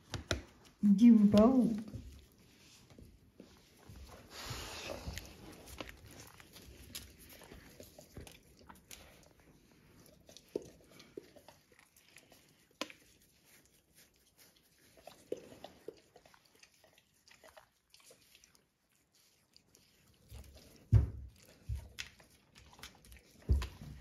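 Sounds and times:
paws moving on cork floor: 0:00.0 - 0:18.5, 0:19.2 - 0:24.0.

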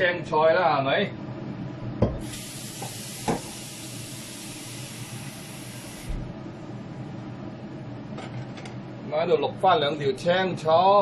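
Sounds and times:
tap shutting off knock: 0:02.0 - 0:03.6, 0:06.0 - 0:06.3
kitchen tap running: 0:02.1 - 0:06.2.

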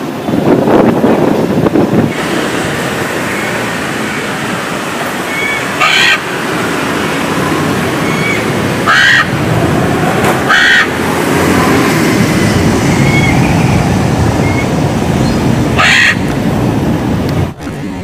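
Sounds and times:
background rush of noise: 0:00.0 - 0:18.0
macaw squawking: 0:05.2 - 0:06.4, 0:08.0 - 0:09.4, 0:10.5 - 0:11.0, 0:15.8 - 0:16.3.

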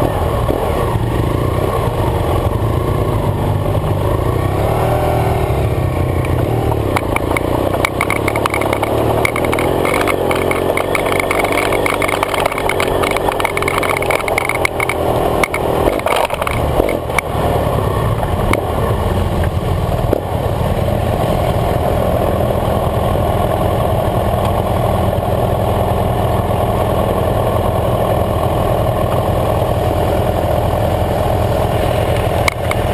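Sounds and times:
motorcycle engine running: 0:00.0 - 0:32.9
gravel clatter: 0:06.2 - 0:17.5, 0:31.0 - 0:32.9.

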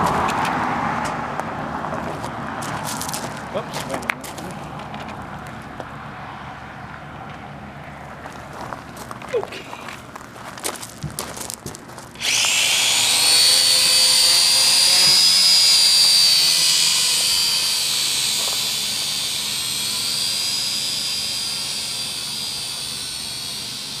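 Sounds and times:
toy drone motors whining: 0:12.1 - 0:24.0.

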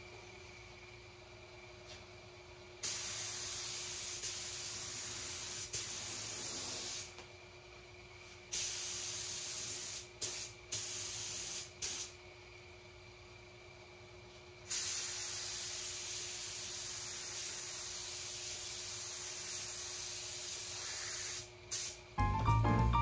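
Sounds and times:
paint spray gun hissing: 0:02.8 - 0:07.1, 0:08.5 - 0:12.2, 0:14.7 - 0:22.0.

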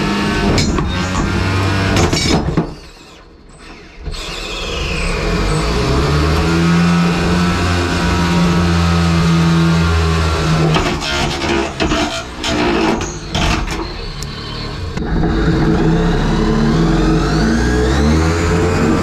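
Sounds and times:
electric motors whining: 0:00.0 - 0:19.0.

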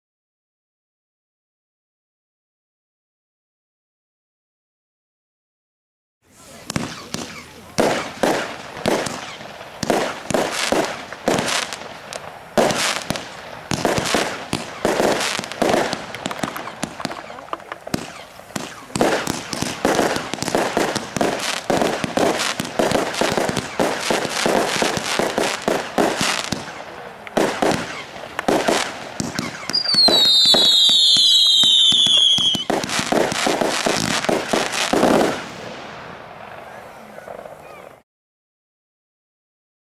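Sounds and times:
crackling firework bursts: 0:06.2 - 0:38.0
whistling fireworks falling in pitch: 0:06.3 - 0:38.0
firework launch bangs: 0:06.4 - 0:37.5.

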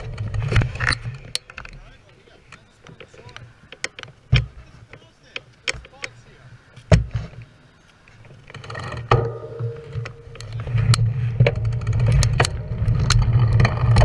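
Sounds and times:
bike rattling and clicking: 0:00.0 - 0:06.2, 0:06.8 - 0:14.0
low rumble: 0:09.1 - 0:14.0
wind rushing over camera: 0:09.9 - 0:14.0.

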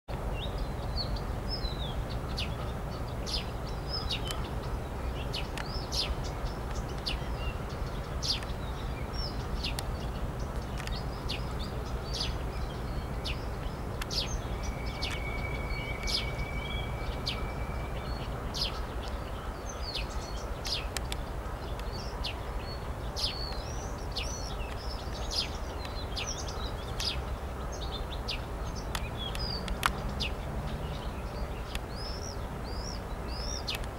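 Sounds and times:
small birds chirping: 0:00.2 - 0:33.9
thin high whistle: 0:14.6 - 0:18.0.

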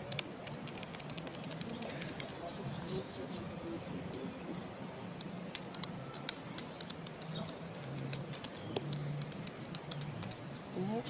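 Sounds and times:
sharp ticks and clicks: 0:00.0 - 0:02.4, 0:05.1 - 0:10.6.

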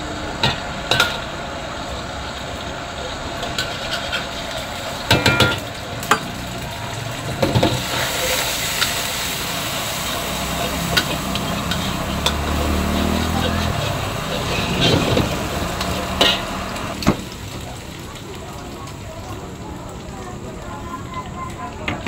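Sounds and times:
rice sizzling in a wok: 0:00.0 - 0:22.0
metal spatula clanking on wok: 0:10.8 - 0:16.6.

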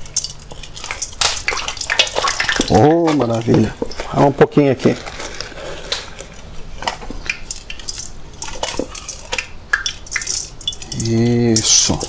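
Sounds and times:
fish sizzling in hot oil: 0:00.0 - 0:02.8, 0:07.1 - 0:11.4
utensils clinking on metal pan: 0:07.2 - 0:12.0.

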